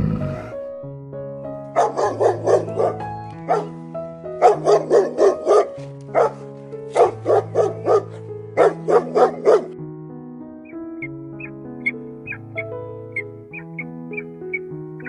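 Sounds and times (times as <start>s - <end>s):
music with long held notes: 0.0s - 15.0s
dog barking: 1.8s - 3.8s, 4.4s - 9.8s.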